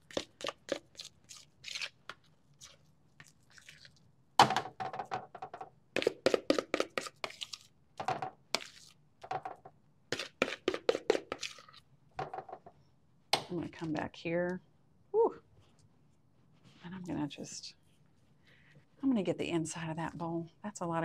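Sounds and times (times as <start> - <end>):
utensil scraping a bowl: 6.0 - 7.7, 10.1 - 11.8.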